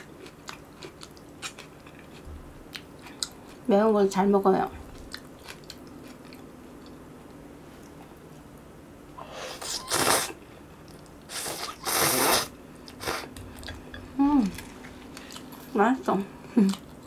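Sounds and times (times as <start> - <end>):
noodles being slurped: 11.3 - 13.3.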